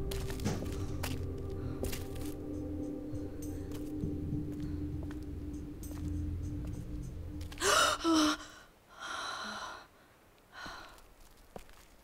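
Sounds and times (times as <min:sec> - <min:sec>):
low music drone: 0:00.0 - 0:08.6
woman gasping: 0:07.6 - 0:09.9
soft breaths: 0:07.6 - 0:11.4.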